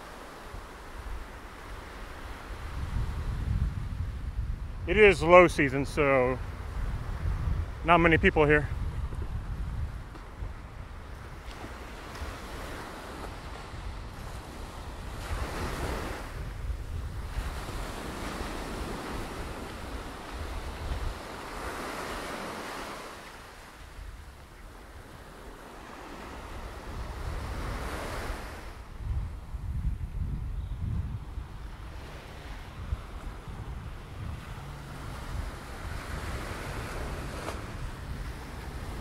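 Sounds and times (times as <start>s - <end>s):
small waves breaking on shore: 0.0s - 30.1s, 31.0s - 39.0s
wind rumbling on microphone: 0.0s - 39.0s.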